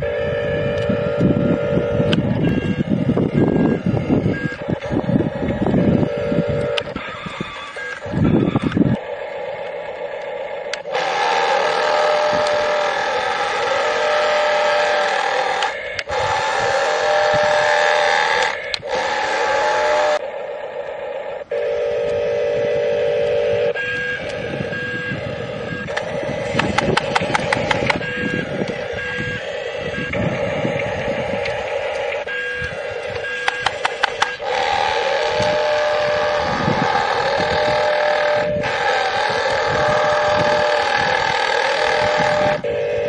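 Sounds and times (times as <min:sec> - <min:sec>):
tinny toy engine sound effects: 0:00.0 - 0:43.0
short repeated beeps: 0:02.3 - 0:04.9
clicks: 0:18.2 - 0:19.1, 0:25.7 - 0:29.2, 0:30.0 - 0:35.7.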